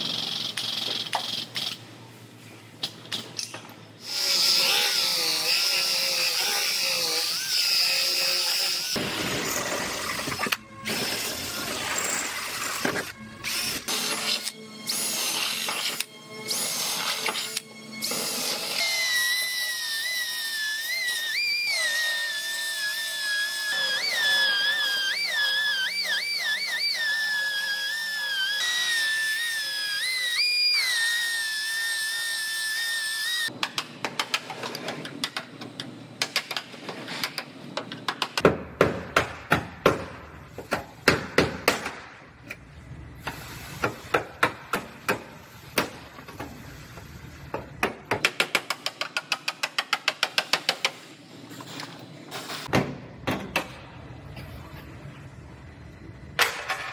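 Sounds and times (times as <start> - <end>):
grinder whining on metal: 4.0 - 9.0, 16.5 - 33.5.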